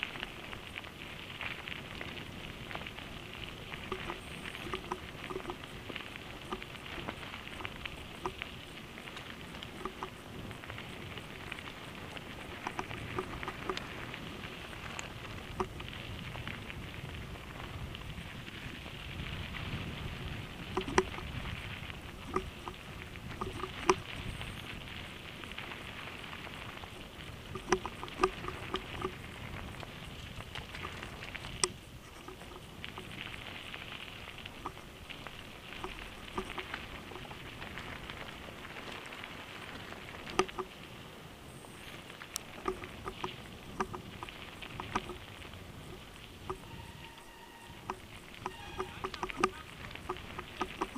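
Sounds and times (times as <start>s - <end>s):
bike tyres crunching on gravel: 0.0s - 50.9s
bike clacking and rattling: 1.5s - 19.3s, 20.0s - 40.8s, 42.3s - 46.7s, 47.7s - 50.9s.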